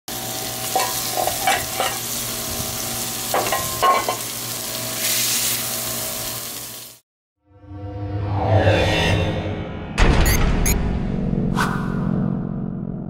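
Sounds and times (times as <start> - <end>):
burger patty sizzling on a griddle: 0.1 - 7.0.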